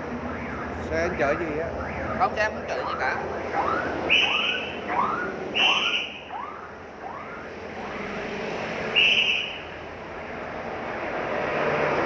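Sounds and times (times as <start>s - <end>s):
traffic noise: 0.0s - 12.0s
shrill whistle blasts: 4.1s - 6.6s, 8.9s - 9.7s.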